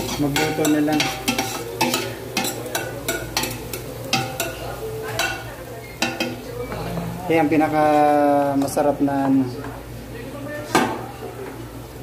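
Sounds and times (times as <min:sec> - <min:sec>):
metal spoon scraping a pot: 0:00.0 - 0:04.6
light sizzle of frying: 0:00.0 - 0:12.0.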